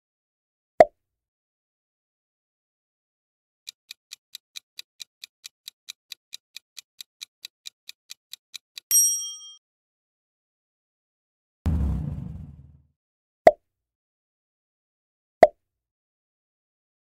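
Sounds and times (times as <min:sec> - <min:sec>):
rapid clock ticking: 0:03.7 - 0:08.9.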